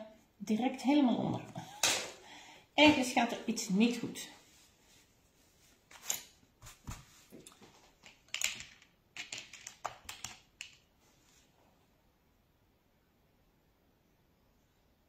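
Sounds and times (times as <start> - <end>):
clicks and taps of handling materials: 6.8 - 10.9.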